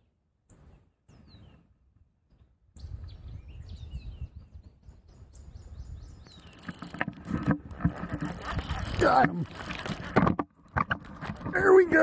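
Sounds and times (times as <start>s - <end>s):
birds chirping: 0.0s - 10.0s
fishing reel clicking: 6.4s - 10.2s.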